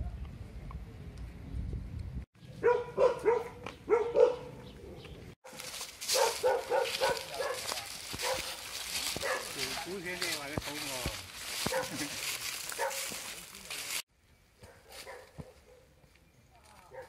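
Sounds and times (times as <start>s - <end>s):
dog barking: 2.6s - 4.6s, 6.1s - 10.0s, 11.6s - 12.1s, 12.7s - 13.2s, 14.6s - 15.9s.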